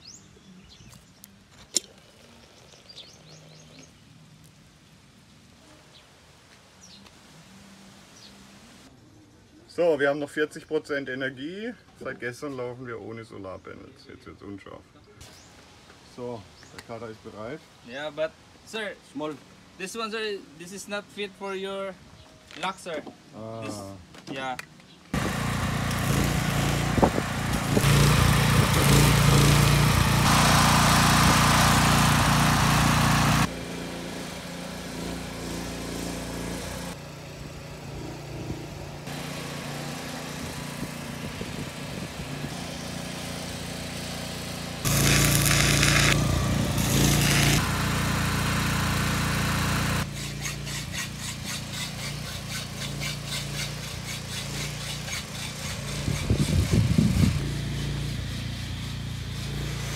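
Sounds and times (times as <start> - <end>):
machine hum: 44.5 - 50.0
arc welding crackling and hissing: 44.8 - 48.0.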